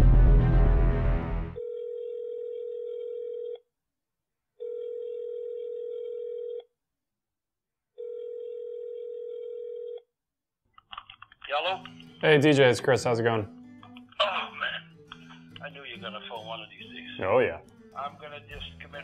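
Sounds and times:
telephone ringback tone: 1.6s - 3.6s, 4.6s - 6.7s, 8.0s - 10.0s.

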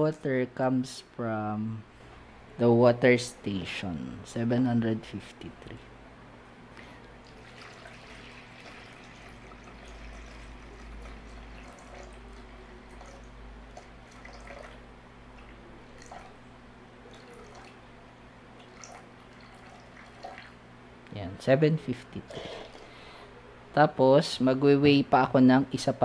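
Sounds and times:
water trickling into plastic bowl: 7.2s - 16.4s, 17.1s - 17.8s, 18.6s - 20.6s.

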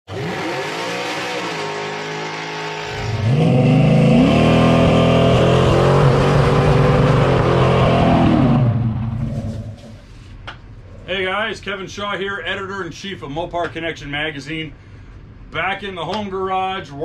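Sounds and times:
car engine revving: 0.1s - 10.0s.

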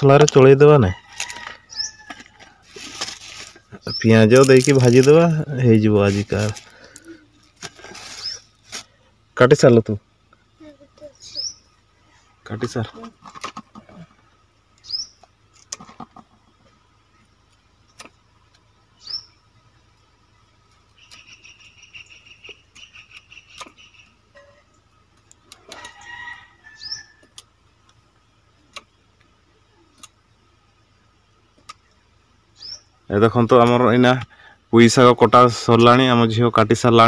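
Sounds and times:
chickens calling: 0.7s - 4.1s, 18.8s - 33.0s
rooster crowing: 0.8s - 2.7s, 25.6s - 27.4s
small bird chirps: 1.6s - 2.1s, 3.6s - 4.2s, 7.0s - 8.6s, 10.4s - 12.3s, 14.7s - 15.4s, 16.4s - 26.0s, 26.6s - 33.1s
stems snapping under blade: 22.7s - 23.8s, 29.9s - 30.2s.

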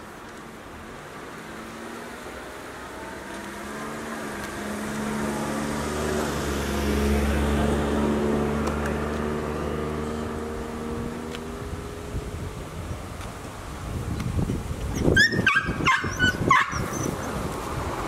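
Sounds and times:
car driving past: 0.8s - 12.6s.

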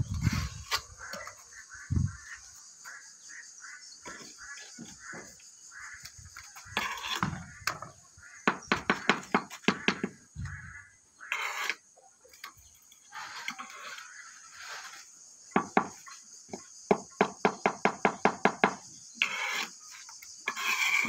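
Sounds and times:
trowel tapping tiles: 8.5s - 10.2s.

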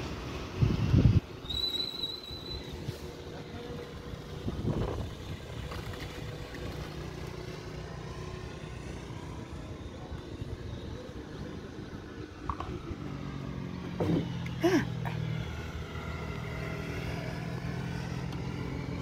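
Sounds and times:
distant road traffic hum: 0.0s - 19.0s
vehicle passing: 2.8s - 19.0s.

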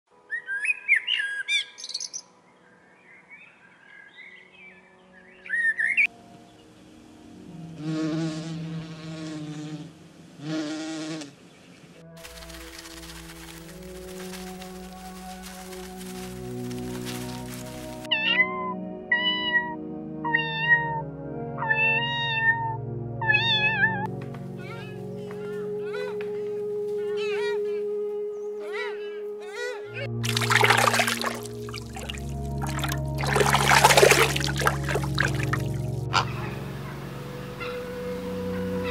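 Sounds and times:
soft background music: 0.1s - 10.4s, 12.0s - 38.9s
blackbird singing: 0.3s - 6.1s
cat meowing: 21.6s - 24.0s.

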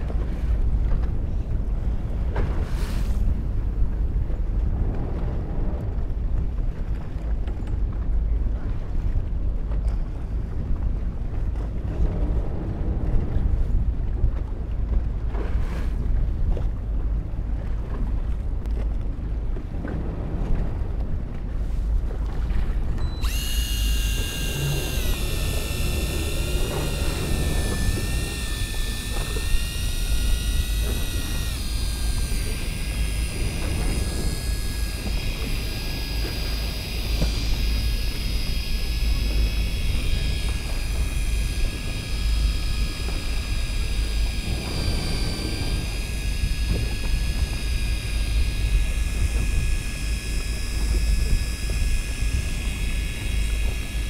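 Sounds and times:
low rumble: 0.0s - 54.0s
electric fishing reel motor whining: 23.0s - 54.0s.

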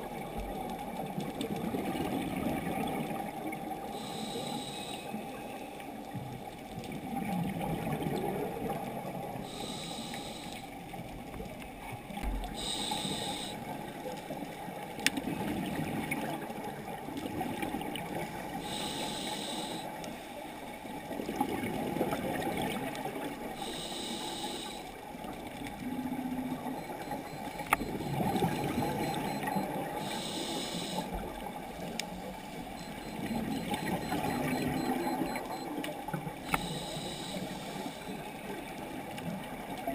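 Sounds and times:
exhaled air bubbling underwater: 0.0s - 39.9s
scuba regulator inhalation hiss: 4.0s - 5.2s, 9.5s - 10.7s, 12.6s - 13.6s, 18.6s - 19.9s, 23.6s - 24.9s, 30.0s - 31.2s, 36.6s - 38.2s.

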